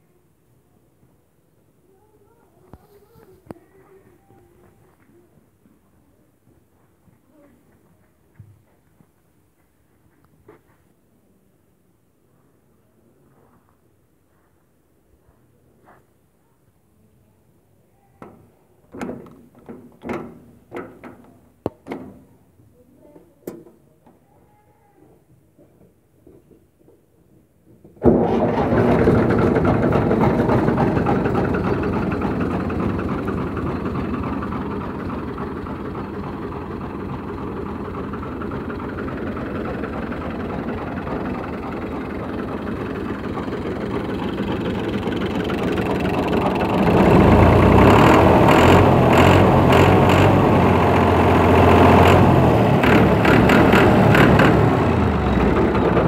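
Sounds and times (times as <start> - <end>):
tractor diesel engine idling: 28.0 - 56.0.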